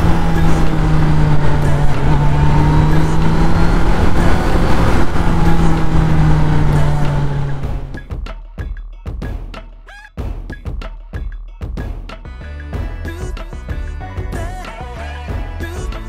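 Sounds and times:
motorcycle engine humming: 0:00.0 - 0:08.2.

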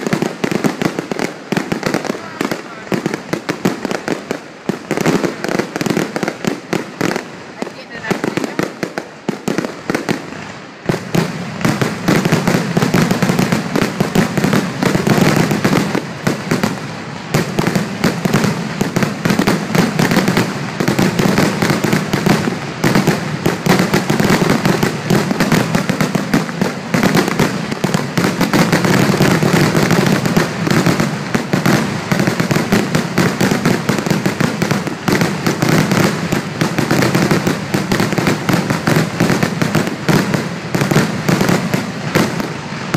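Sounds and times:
fireworks bursts and crackling: 0:00.0 - 0:42.9.

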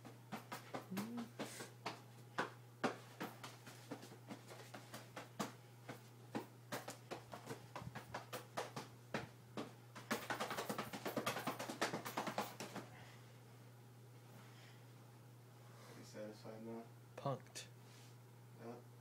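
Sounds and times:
hands slapping a body: 0:00.3 - 0:12.9.

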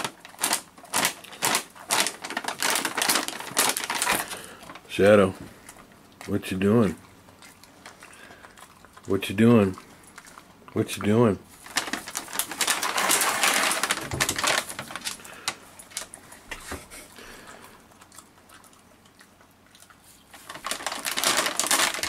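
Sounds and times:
snack bag crinkling: 0:00.0 - 0:10.5, 0:11.5 - 0:16.3, 0:19.8 - 0:22.0.

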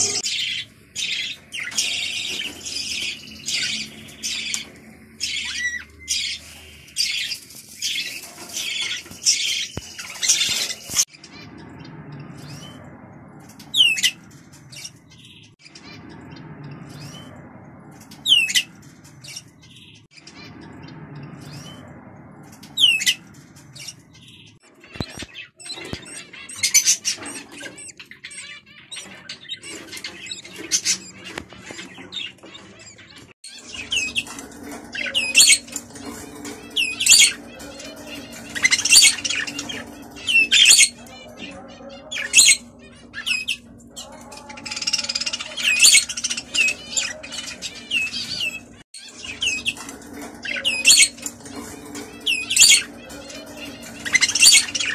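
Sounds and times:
budgerigars chattering: 0:25.0 - 0:54.9.

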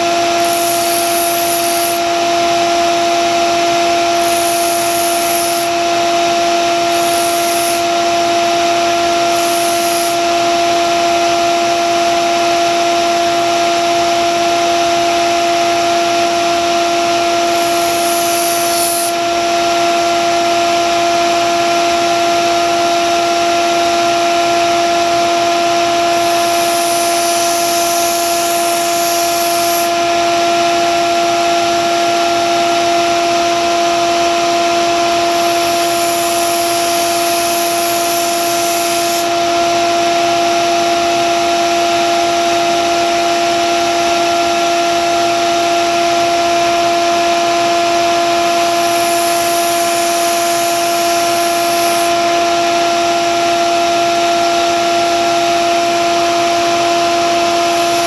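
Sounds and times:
belt sander motor hum: 0:00.0 - 0:10.9, 0:17.0 - 0:19.6, 0:24.6 - 0:30.4, 0:32.7 - 0:39.6, 0:46.6 - 0:52.9, 0:55.9 - 0:58.0
steel hissing on sanding belt: 0:00.2 - 0:02.1, 0:04.2 - 0:05.8, 0:06.8 - 0:07.9, 0:09.3 - 0:10.2, 0:17.4 - 0:19.2, 0:26.1 - 0:29.9, 0:35.2 - 0:39.3, 0:48.5 - 0:52.2, 0:57.6 - 0:58.0.

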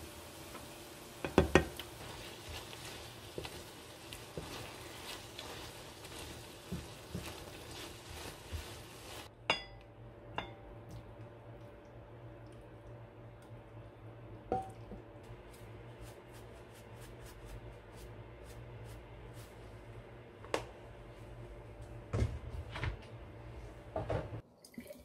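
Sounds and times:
wooden spatula scraping pan: 0:01.4 - 0:09.3.

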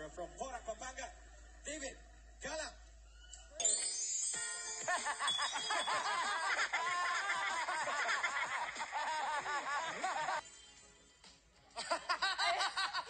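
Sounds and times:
crowd laughing and giggling: 0:04.8 - 0:10.4, 0:11.8 - 0:13.0.

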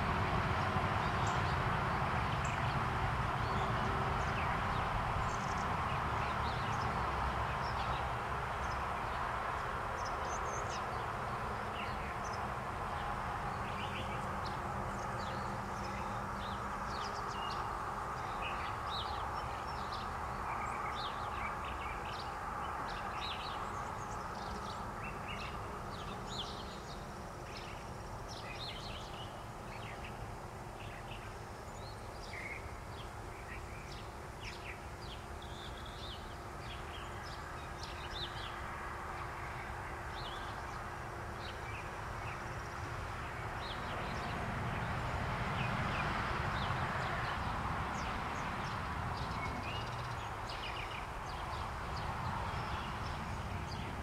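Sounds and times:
outdoor background hiss: 0:00.0 - 0:54.0
small birds chirping: 0:46.6 - 0:54.0.

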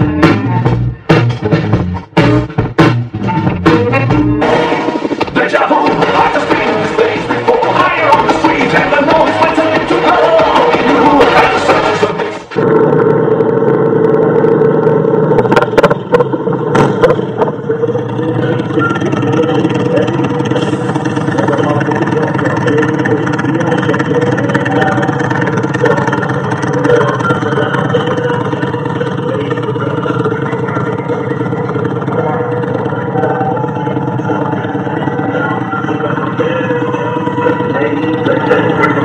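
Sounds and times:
motorcycle engine running: 0:00.0 - 0:39.0.

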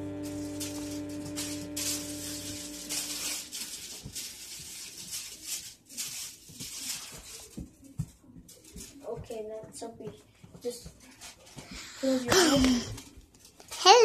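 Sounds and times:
music with long held notes: 0:00.0 - 0:03.8.

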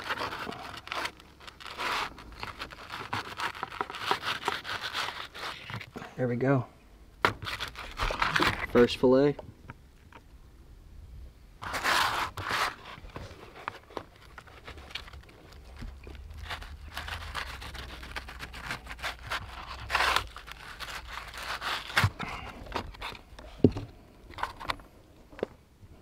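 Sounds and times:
knife scraping fish skin: 0:00.0 - 0:05.7, 0:16.3 - 0:22.3
cardboard crinkling: 0:00.0 - 0:06.0, 0:07.3 - 0:09.0, 0:11.6 - 0:23.5.

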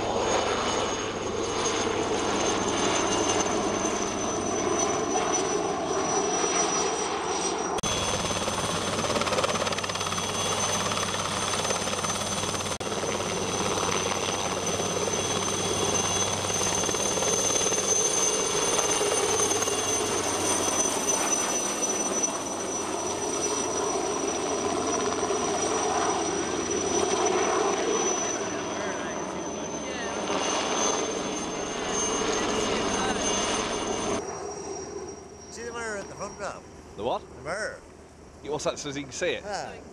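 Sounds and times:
helicopter rotor and engine: 0:00.0 - 0:39.9
thin high whine: 0:28.2 - 0:39.9.

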